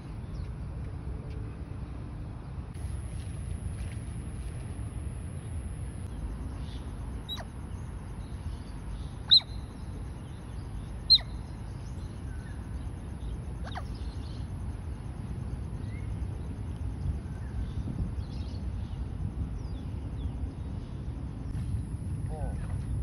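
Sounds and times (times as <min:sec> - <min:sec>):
otter chirping: 0:05.0 - 0:12.8, 0:13.5 - 0:14.5.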